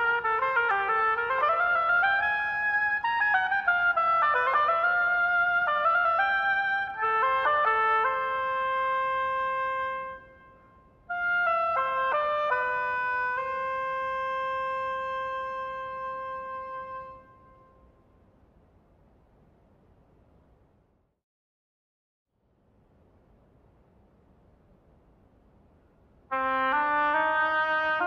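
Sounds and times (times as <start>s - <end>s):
solo oboe playing: 0.0s - 18.0s, 26.3s - 28.0s.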